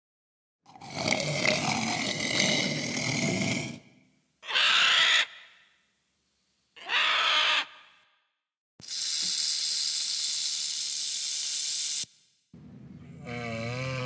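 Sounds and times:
vulture harsh calls: 4.4 - 5.8, 6.8 - 8.0
walrus calling: 4.4 - 5.8, 6.8 - 7.9.

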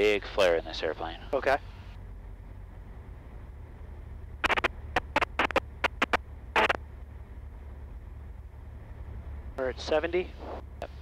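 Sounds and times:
airplane engine drone: 1.1 - 11.0
sharp static crackles: 4.4 - 6.8.

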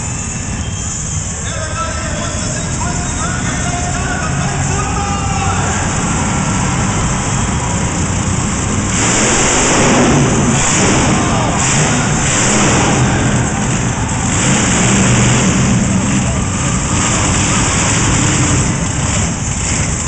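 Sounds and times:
truck engine revving: 0.0 - 20.0.

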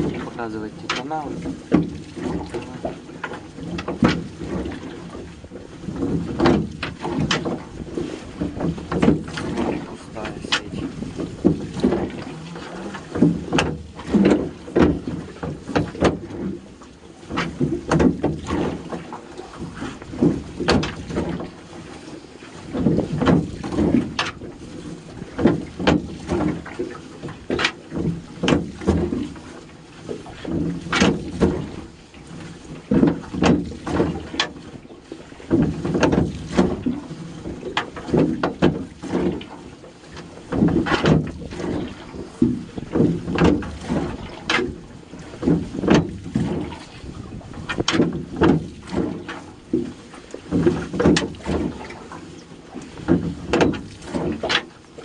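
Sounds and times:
wet splashing: 8.0 - 16.5
net knocking against metal hull: 8.4 - 16.5, 53.0 - 54.7.

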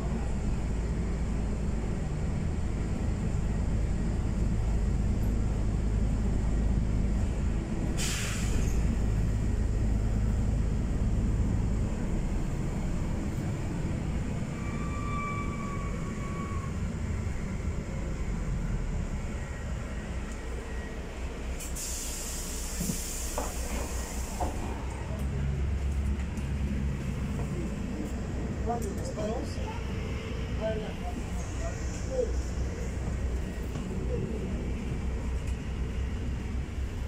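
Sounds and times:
bus engine and road rumble: 0.0 - 37.0
air hissing: 8.0 - 9.1, 21.6 - 24.6.

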